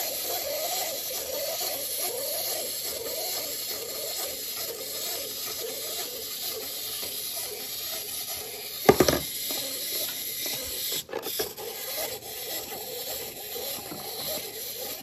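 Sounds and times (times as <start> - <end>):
wind-up toy whirring: 0.0 - 15.0
plastic toy clattering: 8.7 - 12.1.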